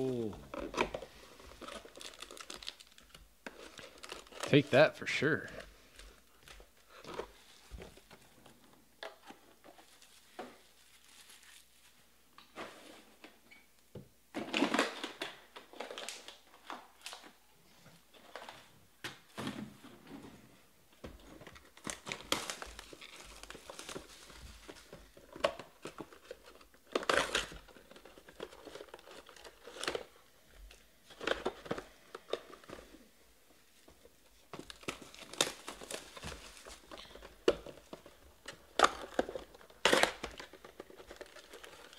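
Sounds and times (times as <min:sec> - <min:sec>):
plastic wrappers crinkling and tearing: 0:00.0 - 0:04.8, 0:09.0 - 0:12.1, 0:14.4 - 0:17.4, 0:21.3 - 0:41.9.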